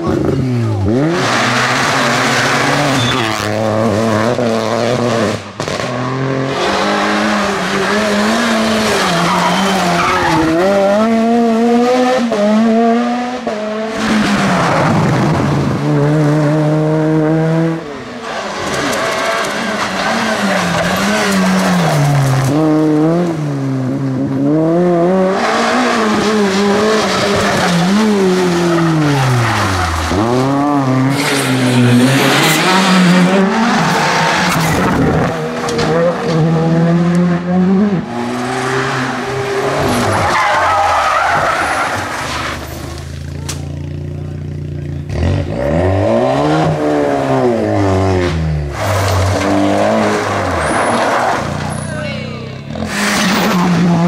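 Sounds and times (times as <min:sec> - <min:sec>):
rally car engines revving hard: 0:00.0 - 0:54.0
tyres skidding on tarmac: 0:00.6 - 0:11.2, 0:17.7 - 0:24.1, 0:25.2 - 0:43.7, 0:46.4 - 0:54.0.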